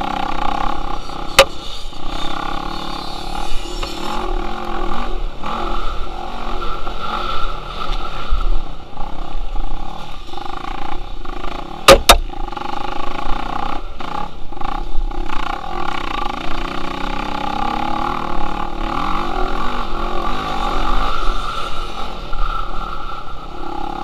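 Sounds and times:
dirt bike engine revving: 0:08.8 - 0:22.3
sharp knocks: 0:11.9 - 0:12.2.

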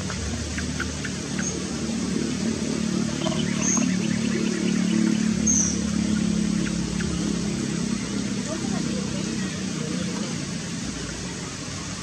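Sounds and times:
low motor-like hum: 0:00.0 - 0:12.0
bird chirps: 0:03.0 - 0:08.2.

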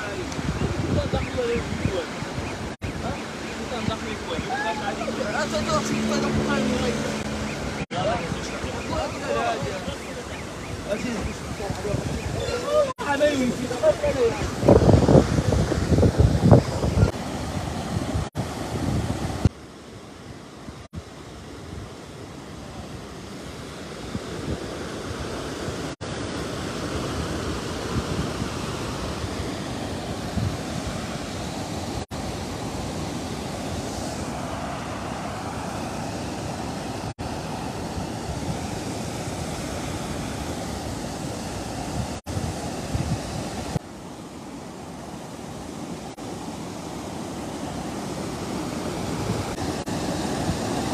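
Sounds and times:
floodwater rushing: 0:00.0 - 0:19.5, 0:22.5 - 0:50.9
wind buffeting microphone: 0:00.0 - 0:19.5, 0:26.6 - 0:43.8.

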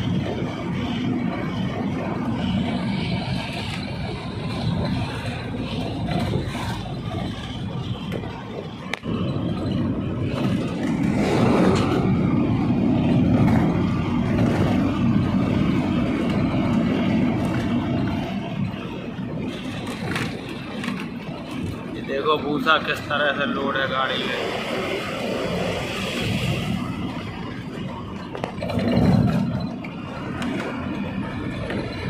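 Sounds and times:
truck engine and tyre rumble: 0:00.0 - 0:32.0.

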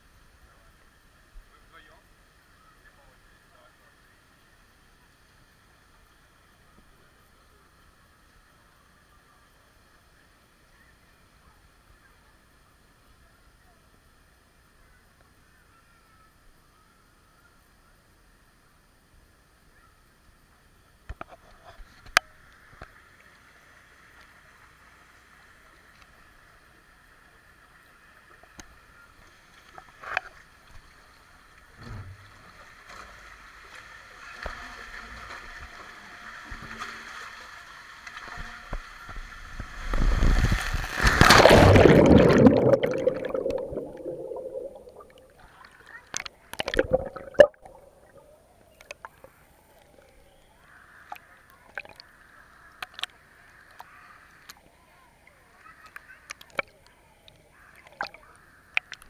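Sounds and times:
water rushing down slide: 0:39.1 - 0:45.4
loud splash into pool: 0:39.9 - 0:45.2
water sloshing: 0:40.7 - 0:49.2.

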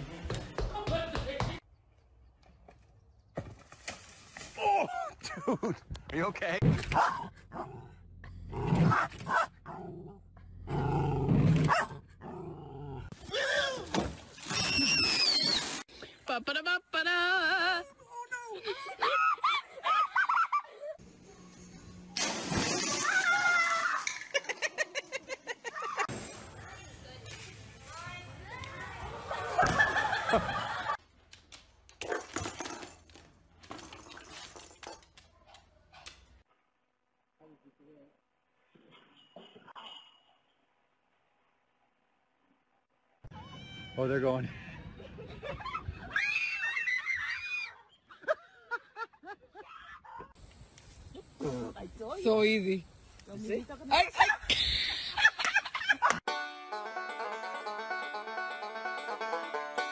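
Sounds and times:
small dog growling and barking: 0:06.8 - 0:13.1.

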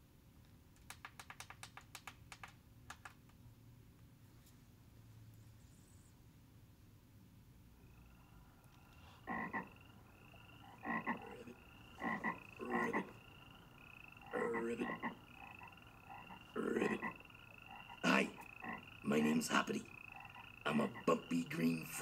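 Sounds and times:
frog croaking: 0:07.8 - 0:22.0.

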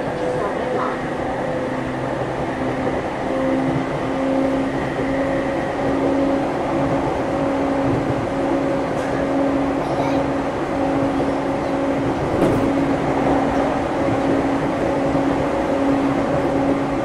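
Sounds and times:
electric train motor whine: 0:00.0 - 0:17.0
wheels rumbling on rail: 0:00.0 - 0:17.0.

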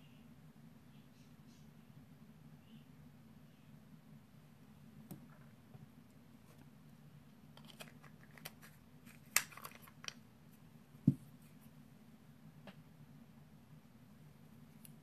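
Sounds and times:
faint steady hum: 0:00.0 - 0:15.0
objects clicking and rattling: 0:07.6 - 0:10.2.

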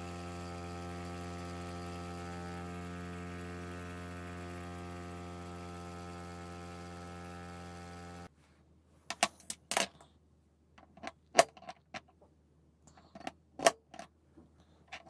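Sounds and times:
bench grinder grinding metal: 0:00.0 - 0:08.3.

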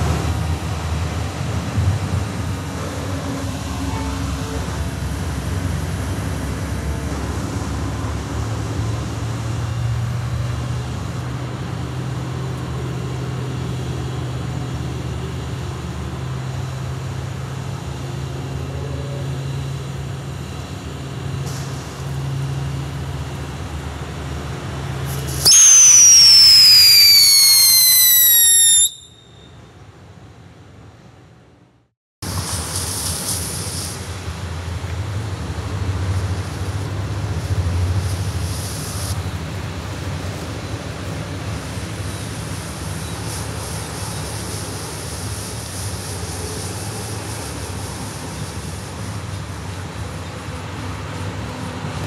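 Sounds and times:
smoke firework rushing: 0:25.1 - 0:29.2
shrill descending whistle: 0:25.5 - 0:29.5.

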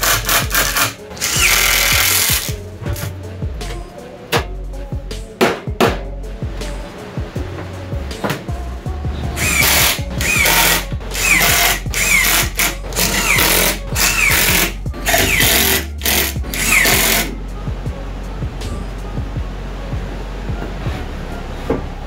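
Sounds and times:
drill-driver motor whine: 0:00.0 - 0:02.5, 0:09.4 - 0:17.3.

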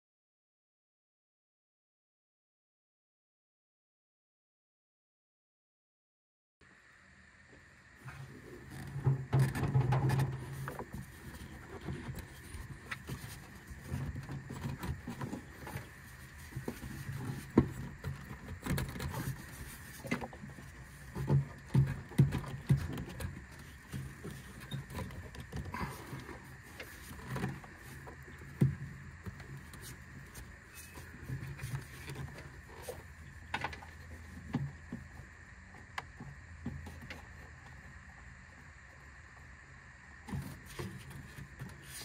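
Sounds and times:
rubber hose knocking and rubbing: 0:08.1 - 0:35.2.

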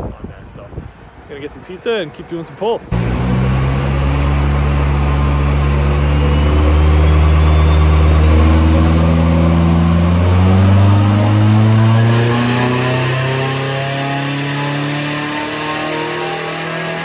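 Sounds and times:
car engine running under load: 0:02.9 - 0:17.0
high whine climbing in pitch: 0:02.9 - 0:17.0.

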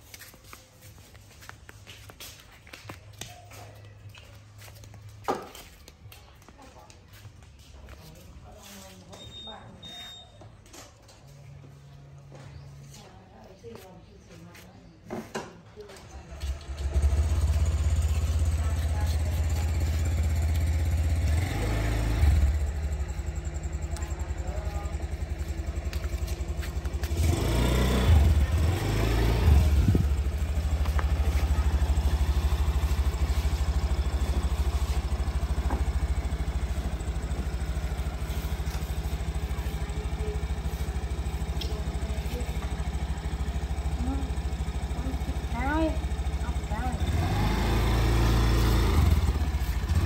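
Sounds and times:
scooter engine idling: 0:15.8 - 0:50.0.

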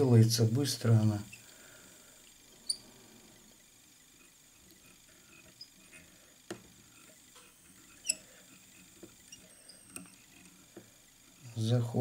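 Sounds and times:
faint clicks and scratches: 0:02.2 - 0:11.7.

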